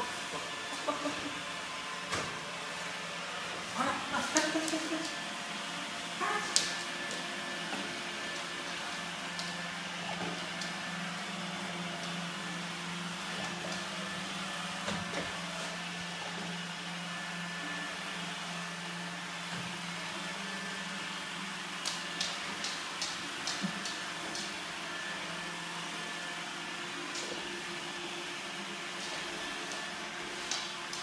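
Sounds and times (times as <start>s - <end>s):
robot vacuum cleaner running: 0.0s - 31.0s.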